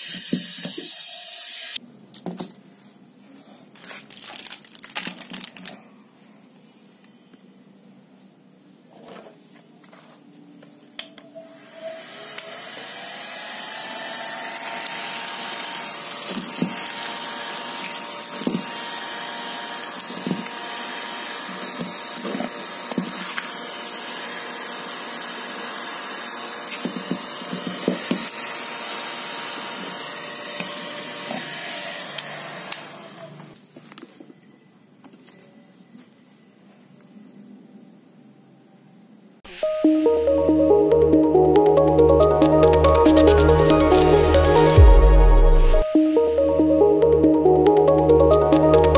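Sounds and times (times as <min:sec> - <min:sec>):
plastic film crinkling: 0:03.7 - 0:05.9
hot-air blower running: 0:11.6 - 0:33.5.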